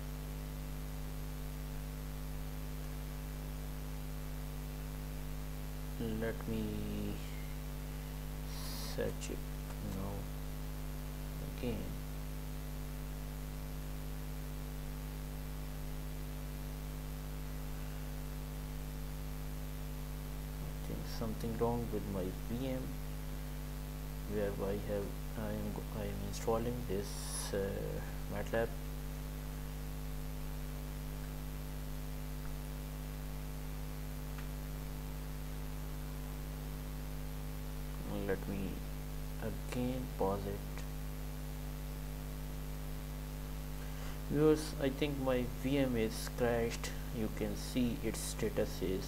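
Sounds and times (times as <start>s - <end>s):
constant hiss: 0.0s - 49.0s
electrical hum: 0.0s - 49.0s
faint click: 34.3s - 34.6s.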